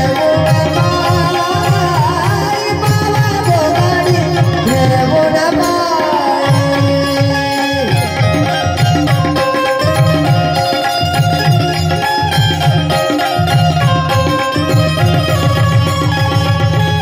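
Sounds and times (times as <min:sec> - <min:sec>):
woman singing: 0:00.0 - 0:08.5
hand drum: 0:00.0 - 0:17.0.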